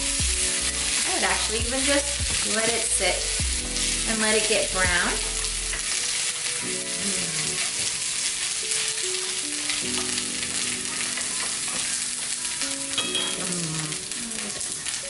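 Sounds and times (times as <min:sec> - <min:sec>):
wooden spatula stirring: 0:00.0 - 0:06.2
food sizzling in a skillet: 0:00.0 - 0:15.0.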